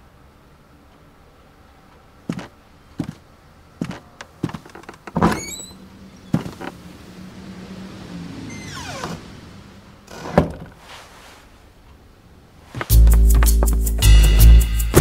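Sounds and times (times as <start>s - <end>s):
squeaking door hinge: 4.7s - 6.7s, 8.5s - 9.4s, 10.1s - 10.7s
footsteps crossing a room: 12.7s - 14.0s.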